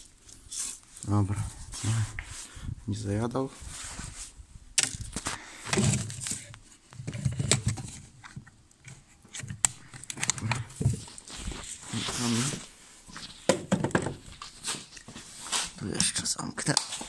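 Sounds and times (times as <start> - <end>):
rustling straw: 0.0 - 2.6, 11.0 - 13.4, 14.3 - 15.9.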